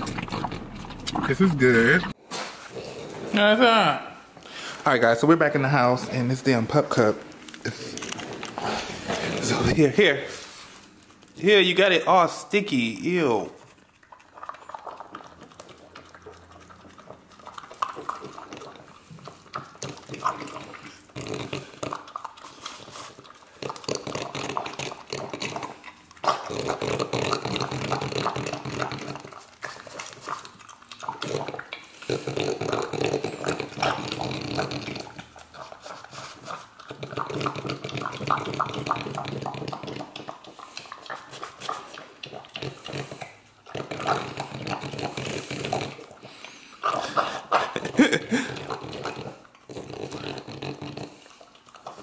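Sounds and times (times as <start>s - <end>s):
dog licking and lapping: 0.0s - 2.7s, 4.3s - 52.0s.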